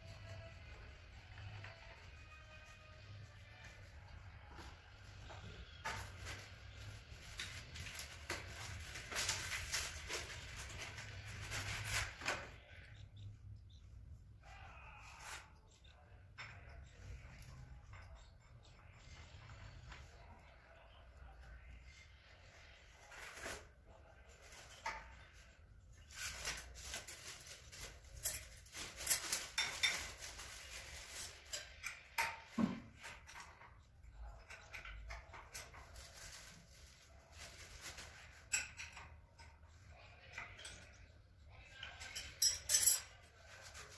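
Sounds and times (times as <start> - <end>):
metal parts clinking and rattling: 42.0 - 43.2.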